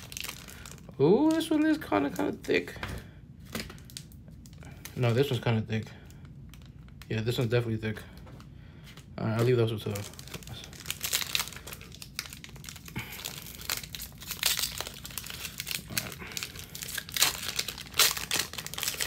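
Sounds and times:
foil wrapper crinkling and tearing: 0:00.0 - 0:02.8, 0:03.4 - 0:08.1, 0:08.9 - 0:19.0.

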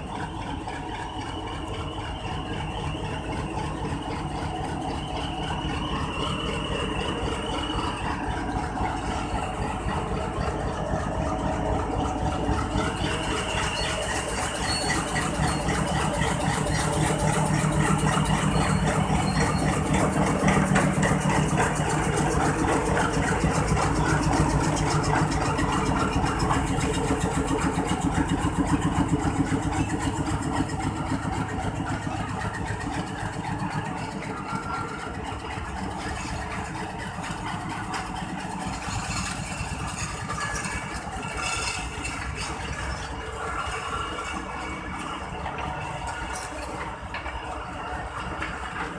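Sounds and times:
faint high-pitched squeals: 0:00.0 - 0:48.9
locomotive engine running: 0:00.0 - 0:48.9.

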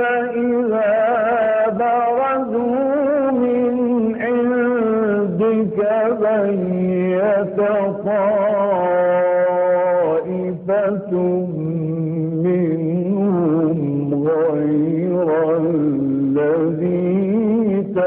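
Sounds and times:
man reciting melodically: 0:00.0 - 0:18.0.

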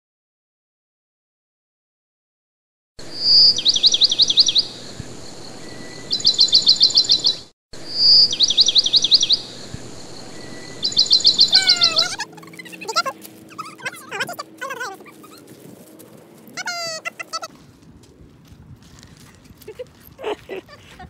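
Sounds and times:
songbird calling: 0:03.1 - 0:15.6.

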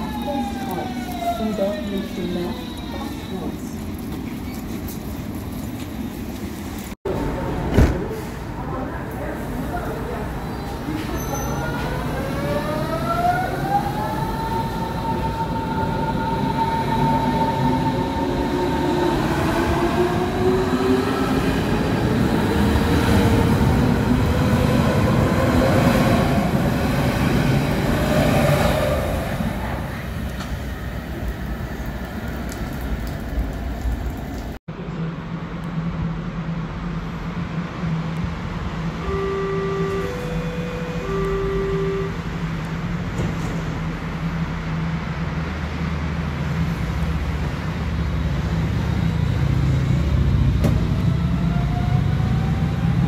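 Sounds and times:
standing train hum: 0:00.0 - 0:11.2, 0:11.8 - 0:53.0
train rumble: 0:00.0 - 0:53.0
three-note chime: 0:39.0 - 0:42.3.

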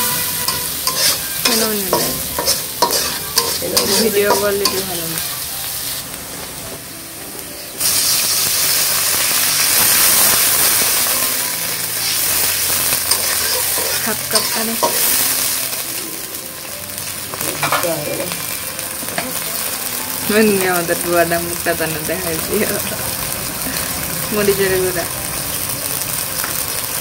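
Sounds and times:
metal spatula scraping a wok: 0:00.0 - 0:06.0, 0:11.9 - 0:15.6
water sizzling in hot oil: 0:00.0 - 0:27.0.

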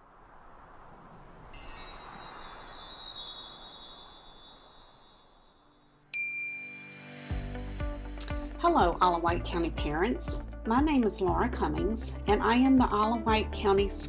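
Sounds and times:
bright shimmering chime: 0:01.6 - 0:07.5.

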